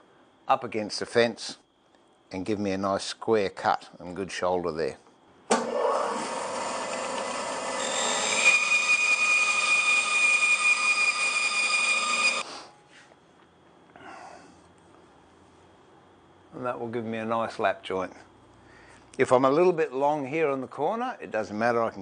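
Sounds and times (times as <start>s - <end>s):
bandsaw cutting wood: 5.6s - 12.5s
high steady whistle: 7.8s - 12.8s.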